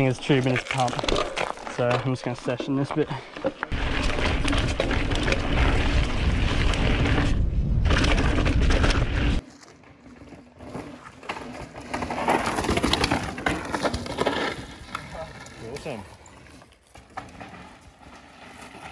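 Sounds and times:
bike rattles and clicks: 0.0s - 18.9s
bike tyres on dirt trail: 0.0s - 18.9s
wind rumbling on microphone: 3.7s - 9.4s.

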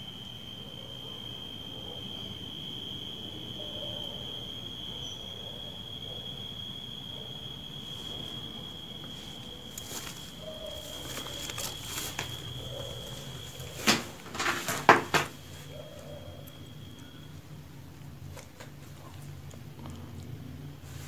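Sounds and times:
insect trilling: 0.0s - 17.9s
faint rustling: 8.0s - 15.9s
sharp knocks and scrapes: 13.6s - 15.4s.

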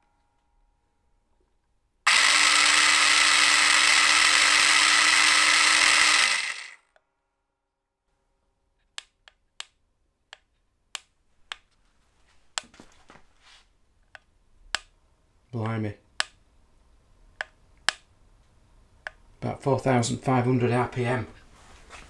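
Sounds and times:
electric motor whining: 2.1s - 6.8s
sharp clicks: 8.9s - 11.7s, 15.6s - 16.4s, 17.4s - 18.1s.

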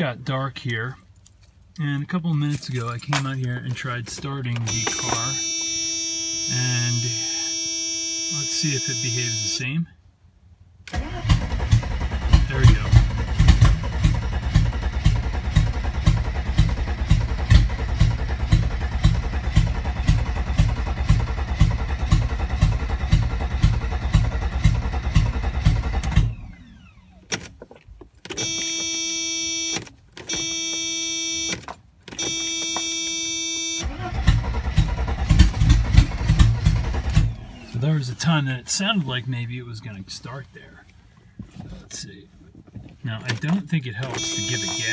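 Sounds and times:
car engine cranking: 0.6s - 9.6s, 10.8s - 38.6s, 40.3s - 44.9s
long steady electronic tones: 4.7s - 9.7s, 28.4s - 31.6s, 32.2s - 33.9s, 44.1s - 44.9s.

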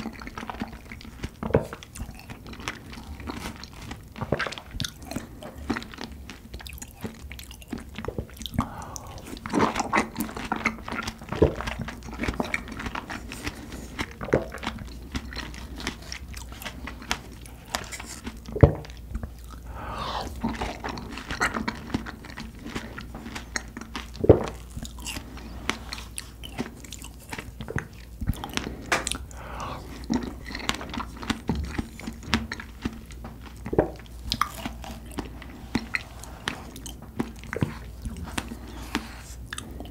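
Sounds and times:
wet biting and chewing: 0.0s - 39.9s.

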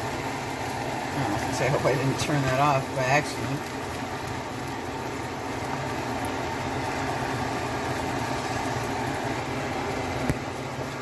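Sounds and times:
machine hum with hiss: 0.0s - 11.0s.

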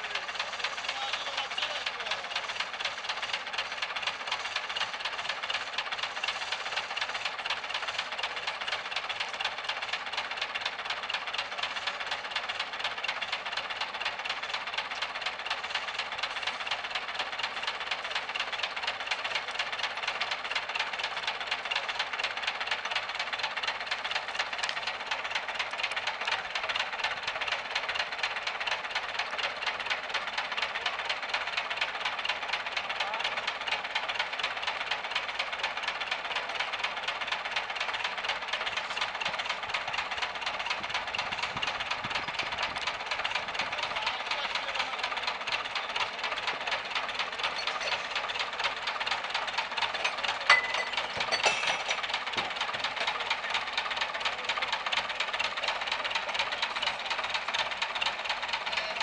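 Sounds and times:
tractor diesel engine clatter: 0.0s - 59.0s
metal clank ringing: 50.1s - 52.0s.

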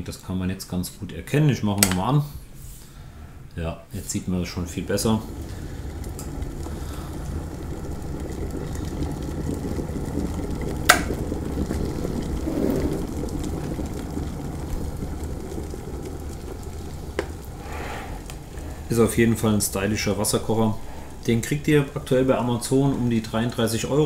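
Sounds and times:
kettle switch click: 1.8s - 2.0s
kettle boiling: 3.4s - 24.0s.

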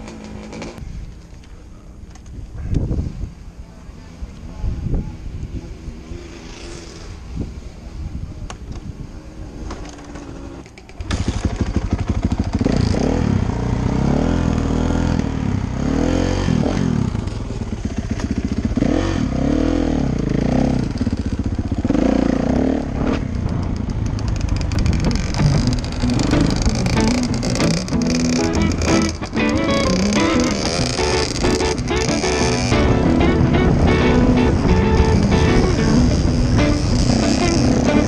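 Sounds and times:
dirt bike engine revving: 10.1s - 38.0s.

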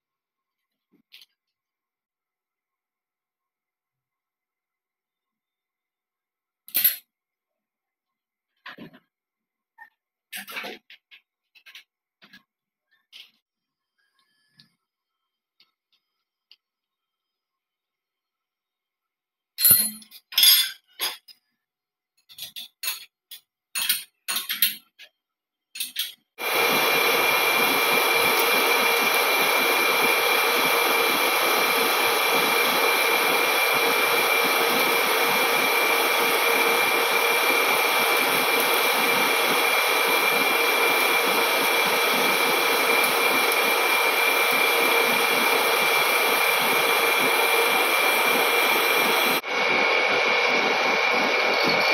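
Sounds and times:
lathe machining with high whine: 26.4s - 51.9s.

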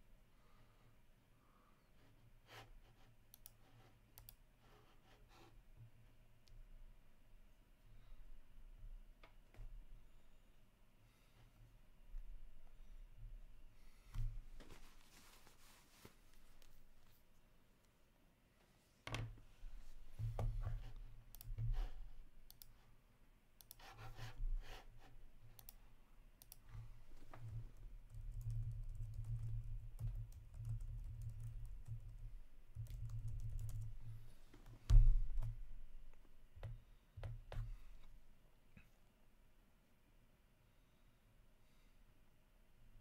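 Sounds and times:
typing on computer keyboard: 27.4s - 33.9s.

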